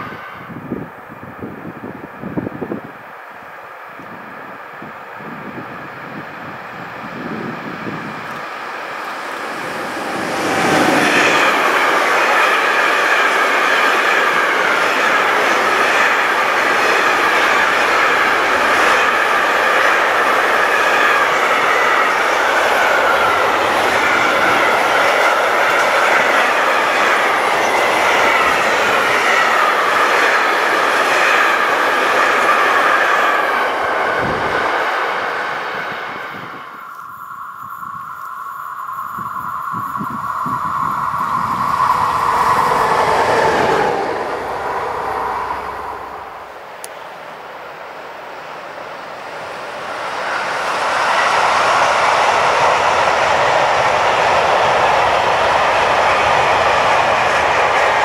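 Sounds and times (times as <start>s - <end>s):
freight train wagons rumbling: 7.0s - 47.6s
train wheels squealing: 7.4s - 46.6s.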